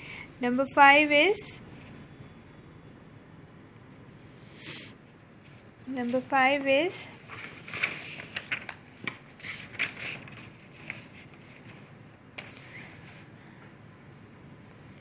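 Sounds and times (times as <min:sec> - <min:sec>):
pen clicks and paper rustles: 0:07.3 - 0:11.8.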